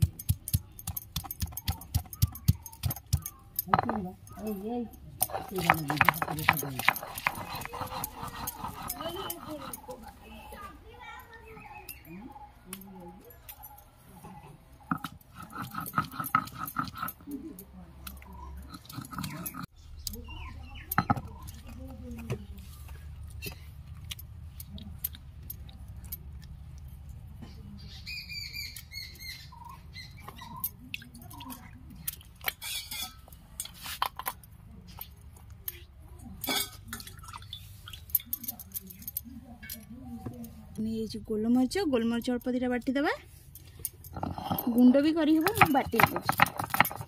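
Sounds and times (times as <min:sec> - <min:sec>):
stone roller grinding paste: 0:00.0 - 0:04.5, 0:05.2 - 0:10.7, 0:13.5 - 0:19.7, 0:20.9 - 0:23.7, 0:44.1 - 0:47.0
steel bowl clinking: 0:00.0 - 0:20.2, 0:20.8 - 0:22.2, 0:30.6 - 0:34.4, 0:36.4 - 0:39.9, 0:43.8 - 0:47.0
birds chirping: 0:00.6 - 0:24.0, 0:26.6 - 0:32.1, 0:44.2 - 0:47.0
paste scraped off stone: 0:05.3 - 0:10.3.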